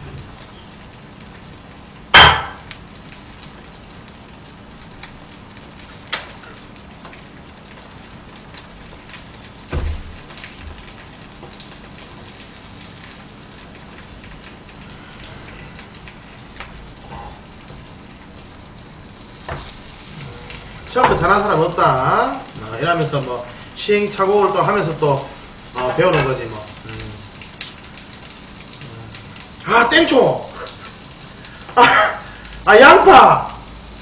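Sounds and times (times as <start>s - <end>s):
batter sizzling in a frying pan: 0.0s - 34.0s
dish or utensil knock: 2.2s - 2.6s
dull thump: 9.7s - 10.2s.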